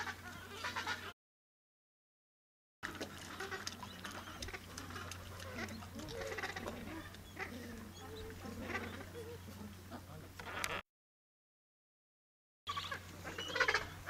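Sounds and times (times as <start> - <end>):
penguins calling: 3.3 - 9.5, 12.7 - 14.0.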